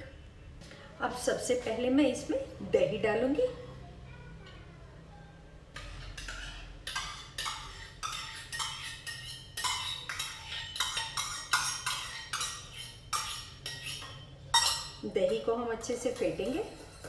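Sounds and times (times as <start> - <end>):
metal spoon scraping steel cup: 6.0 - 15.4, 16.0 - 17.0.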